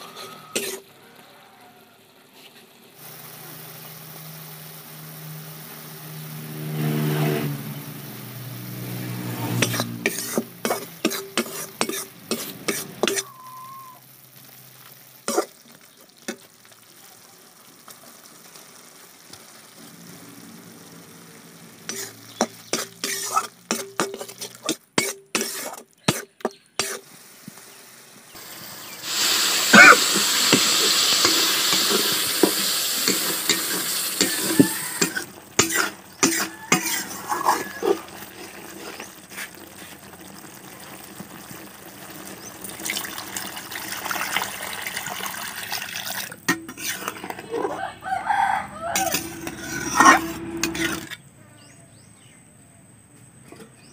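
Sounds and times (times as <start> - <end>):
metal spatula scraping pan: 0.0 - 0.9, 6.4 - 13.4, 21.6 - 27.0, 29.7 - 39.9, 46.5 - 51.3
loud sizzling hiss: 0.0 - 51.2.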